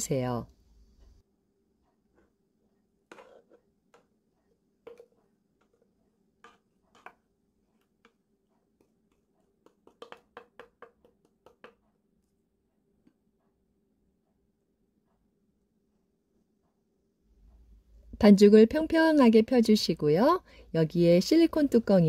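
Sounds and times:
spatula scraping a blender jar: 3.1 - 4.1
knocks and taps: 9.6 - 11.9.

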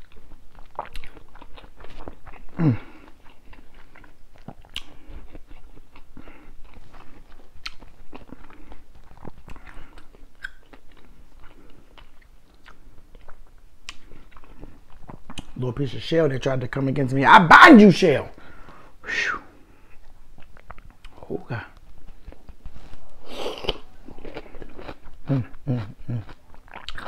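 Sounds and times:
wet chewing smacks and clicks: 0.0 - 15.6, 20.0 - 22.7, 23.6 - 27.0
person humming mm: 2.6 - 3.0, 25.2 - 26.3.

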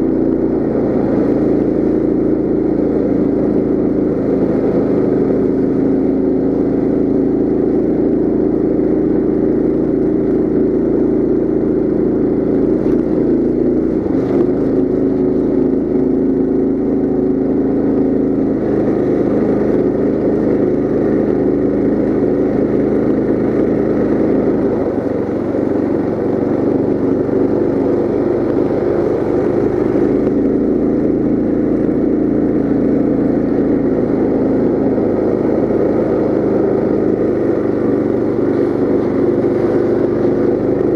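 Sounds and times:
mini bike engine running: 0.0 - 40.9.

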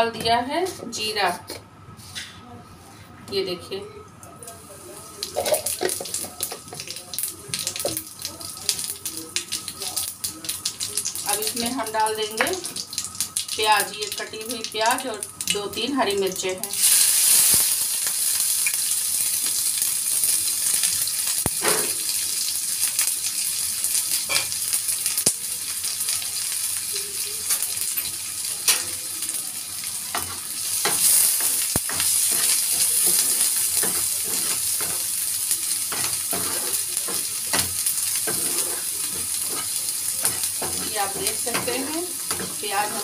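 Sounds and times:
onions sizzling in hot oil: 4.4 - 43.0
spatula clicking and scraping: 30.1 - 35.1, 35.9 - 42.6.

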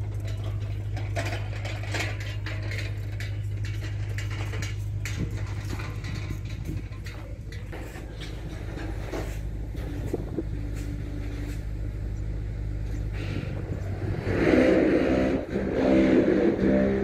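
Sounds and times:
motor engine running and revving: 9.7 - 17.0.

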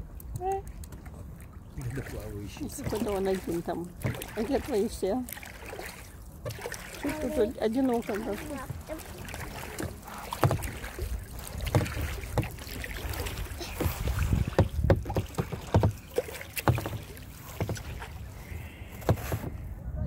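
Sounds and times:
paddle knocks and splashes: 0.0 - 19.6
wind rumble on microphone: 10.4 - 16.0, 17.7 - 20.0.

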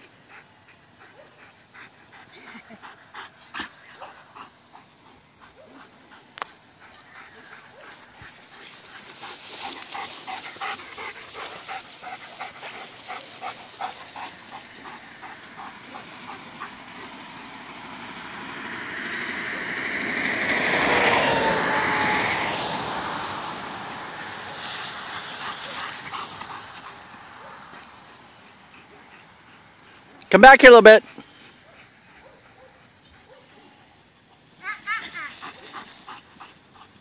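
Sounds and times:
dog panting: 0.0 - 18.3, 24.2 - 30.3, 31.0 - 33.4, 34.3 - 37.0
rushing noise: 12.3 - 28.4.

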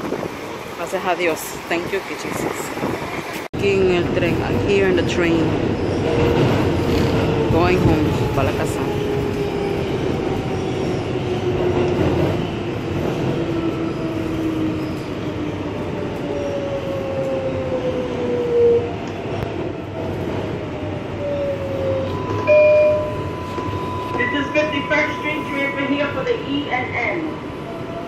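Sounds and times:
subway car rumble and rattle: 0.0 - 28.0
brief higher tone: 22.1 - 25.7.

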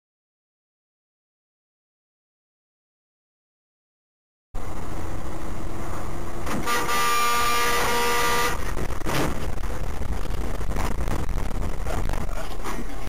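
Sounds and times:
road and engine rumble: 4.6 - 13.0
car horn: 6.4 - 8.9.

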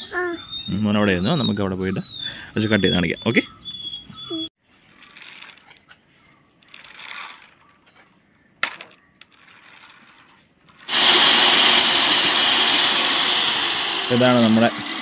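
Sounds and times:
angle grinder running: 10.9 - 15.0.

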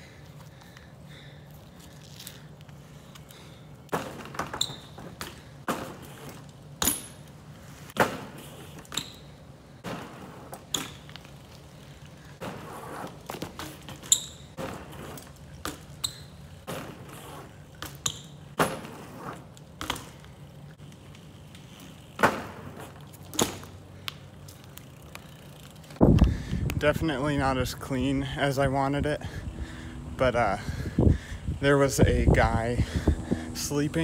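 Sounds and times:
bike knocking and clanking: 3.8 - 11.4, 12.3 - 26.4
low steady hum: 27.3 - 34.0.

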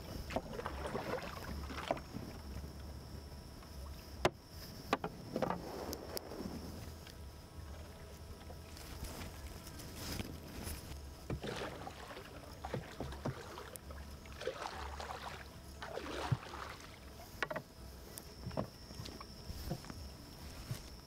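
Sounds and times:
paddle swishing through water: 0.0 - 2.6, 4.6 - 7.0, 7.6 - 17.6.

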